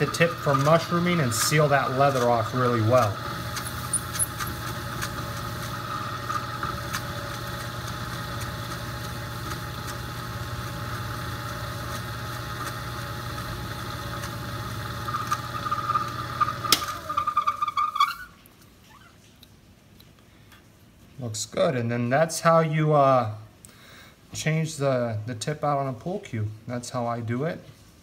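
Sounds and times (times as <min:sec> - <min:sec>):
metal lathe motor humming: 0:00.0 - 0:17.6.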